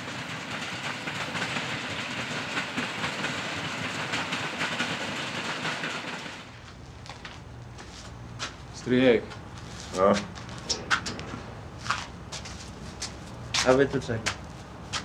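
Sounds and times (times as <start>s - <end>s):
train wheels rumbling: 0.0s - 6.6s, 10.3s - 15.0s
wheels clacking over rail joints: 0.0s - 6.6s.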